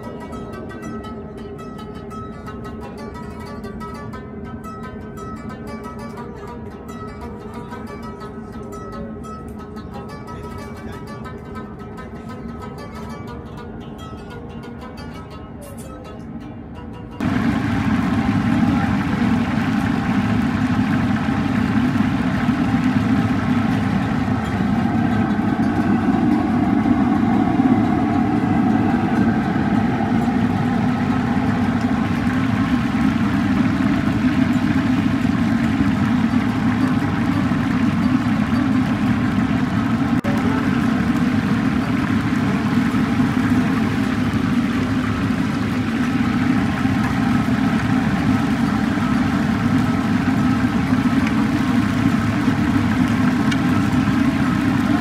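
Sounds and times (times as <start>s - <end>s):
low rumble: 17.2s - 55.0s
oil sizzling and bubbling: 17.2s - 55.0s.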